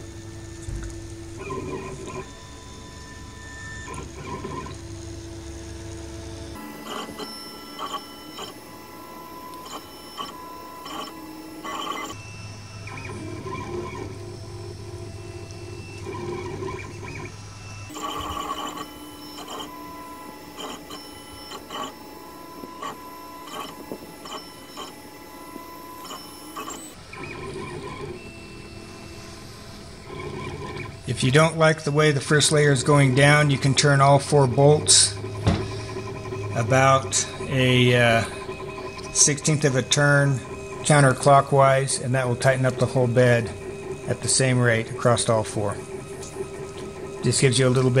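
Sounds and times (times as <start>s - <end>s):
stepper motors whining: 0.0s - 48.0s.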